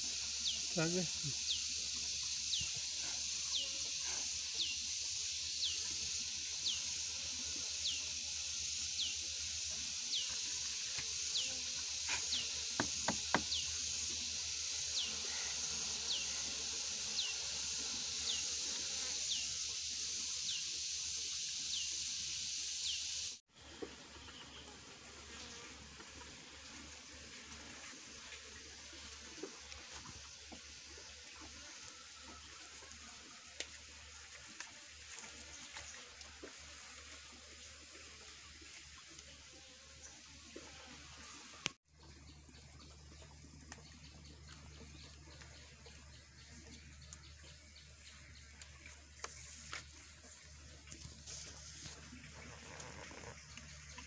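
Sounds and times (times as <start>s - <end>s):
high-pitched insect drone: 0.0s - 23.4s
wooden hive frames knocking: 12.7s - 13.7s.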